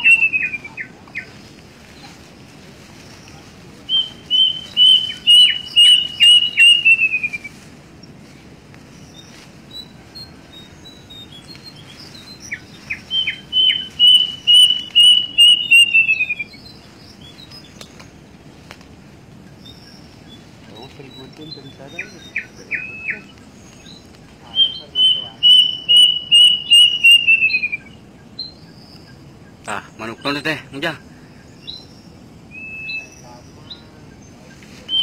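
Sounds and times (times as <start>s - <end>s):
cuckoo whistling: 0.0s - 1.3s, 3.9s - 7.6s, 12.5s - 16.6s, 21.0s - 23.4s, 24.4s - 28.0s, 32.5s - 33.2s.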